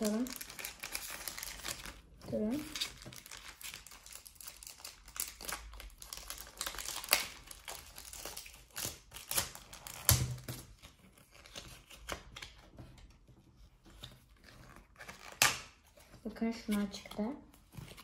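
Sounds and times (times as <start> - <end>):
plastic wrapper crinkling and tearing: 0.0 - 12.6.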